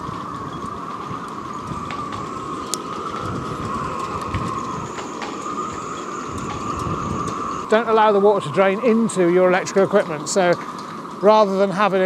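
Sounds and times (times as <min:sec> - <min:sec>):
wind gusting on microphone: 0:00.0 - 0:12.0
whistling tone: 0:01.2 - 0:08.9.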